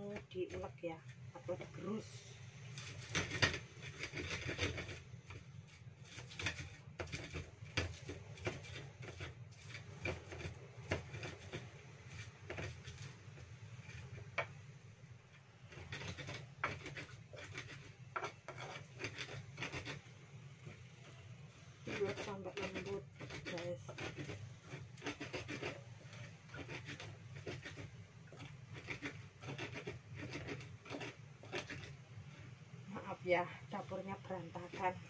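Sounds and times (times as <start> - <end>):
stone pestle grinding in mortar: 2.7 - 14.5, 15.7 - 21.2, 21.8 - 32.4, 34.5 - 35.0.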